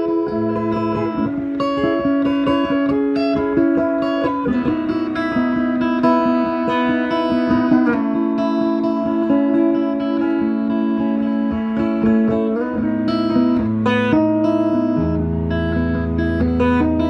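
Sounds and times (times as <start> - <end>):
electric guitar playing: 0.0 - 17.0.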